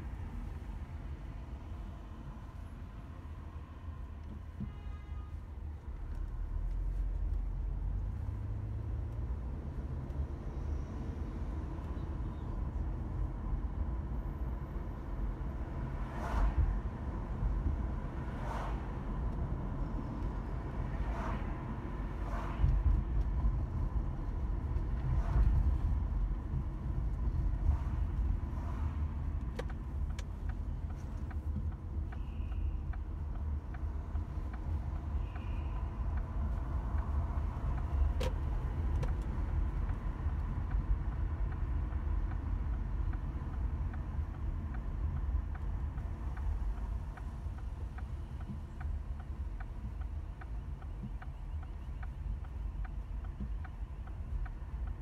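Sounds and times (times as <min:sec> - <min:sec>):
car engine and tyre rumble: 0:00.0 - 0:55.0
light regular ticking: 0:29.2 - 0:55.0.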